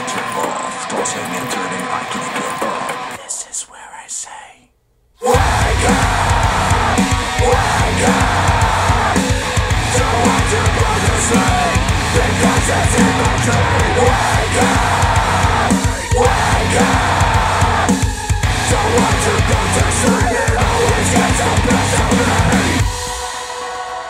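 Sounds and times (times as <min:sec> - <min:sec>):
heavy rock music over speakers: 0:05.3 - 0:24.0.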